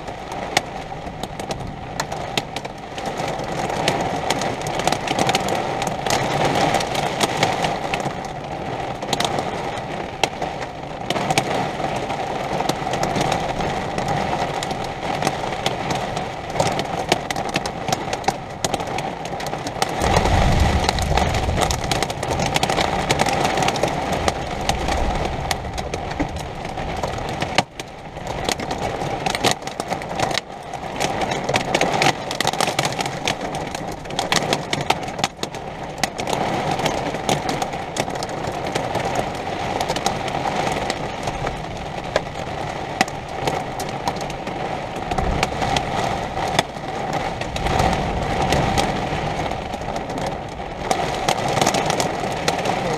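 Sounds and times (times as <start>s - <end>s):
heavy rain: 0.0s - 52.9s
thunder rumbling: 19.8s - 29.4s, 43.4s - 52.9s.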